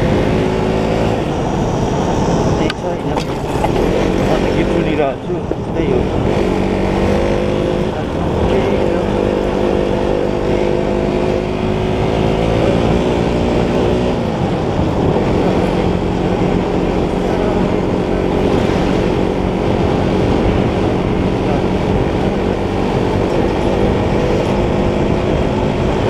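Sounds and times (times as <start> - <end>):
motorcycle engine: 0.0 - 5.2
wind on microphone: 0.0 - 26.0.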